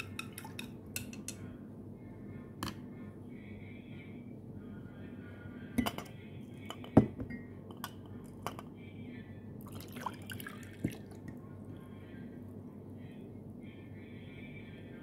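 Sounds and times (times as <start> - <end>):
clinks and knocks against glass: 5.8 - 6.1.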